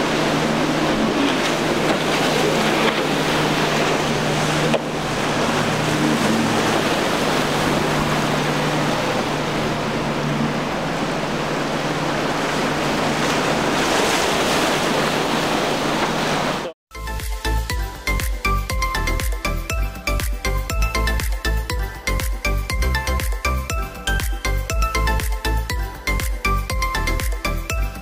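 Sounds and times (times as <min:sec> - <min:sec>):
breaking surf and spray: 0:00.0 - 0:16.8
outboard engine drone: 0:00.0 - 0:28.0
wind: 0:00.0 - 0:28.0.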